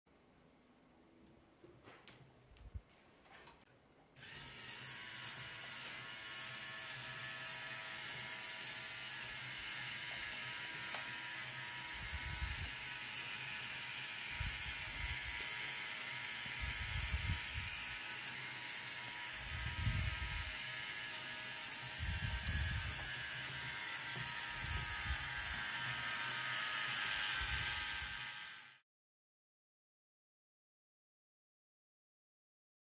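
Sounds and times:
plastic gears whirring and clattering: 0:04.2 - 0:28.8.

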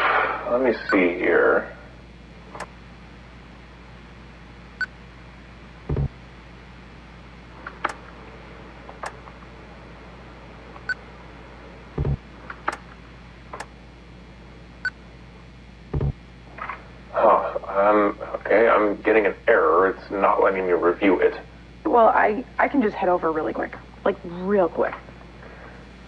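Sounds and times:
low hum: 0:00.0 - 0:26.0
short electronic blips: 0:05.9 - 0:06.1
heavy low thuds: 0:05.9 - 0:06.2, 0:12.0 - 0:12.3, 0:15.9 - 0:16.3
keyboard and mouse clicks: 0:07.6 - 0:08.0.

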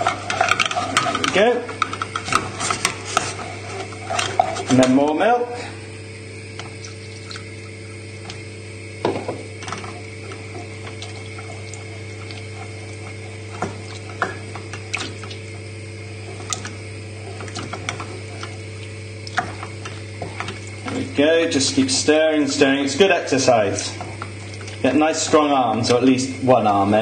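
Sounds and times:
spoon stirring wet sauce: 0:00.0 - 0:05.4, 0:09.6 - 0:26.8
steady low hum: 0:00.0 - 0:27.0.

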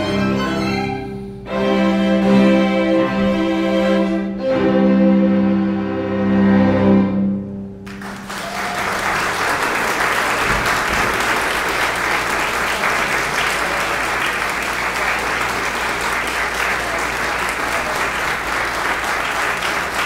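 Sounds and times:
string quartet chord: 0:00.0 - 0:08.2
audience applause: 0:07.8 - 0:20.0.

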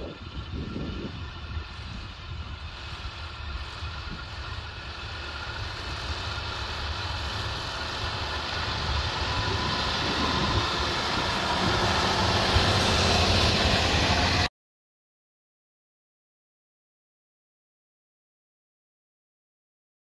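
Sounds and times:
tractor diesel engine under load: 0:00.0 - 0:14.5.

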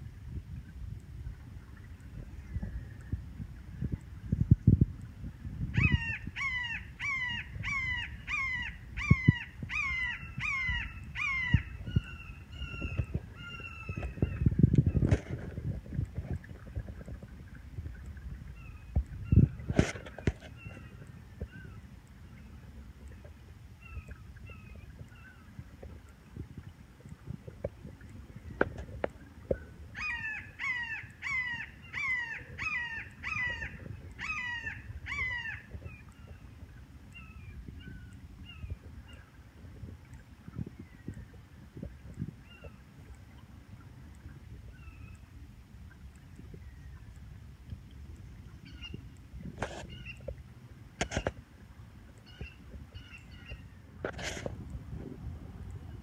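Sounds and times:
hawk calling: 0:05.8 - 0:14.5, 0:30.0 - 0:36.3, 0:48.6 - 0:49.0, 0:52.2 - 0:53.7.

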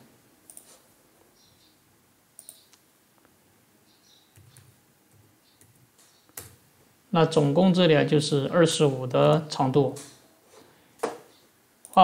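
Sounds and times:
keyboard clicks: 0:00.5 - 0:00.7, 0:02.4 - 0:02.8
computer mouse clicks: 0:00.5 - 0:00.8, 0:02.4 - 0:02.8.

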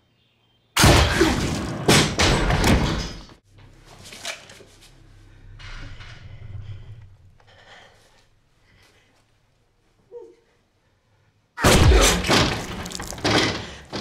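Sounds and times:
low drone: 0:04.9 - 0:07.6
shotgun blasts: 0:11.6 - 0:13.0.

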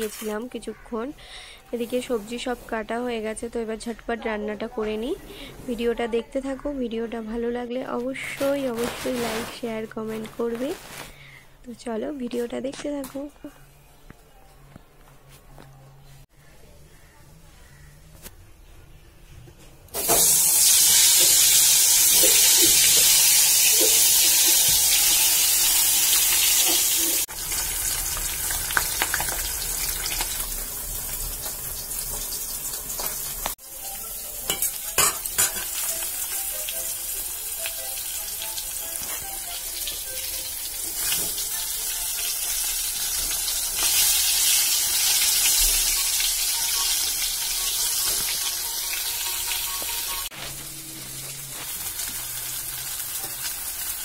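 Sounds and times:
food sizzling in hot oil: 0:00.0 - 0:00.5, 0:08.2 - 0:09.8, 0:20.0 - 0:54.0.

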